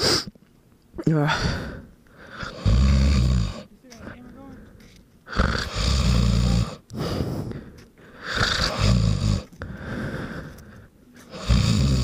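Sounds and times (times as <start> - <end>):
man snoring: 2.3 - 3.7, 5.3 - 6.8, 8.2 - 9.5, 11.3 - 12.0.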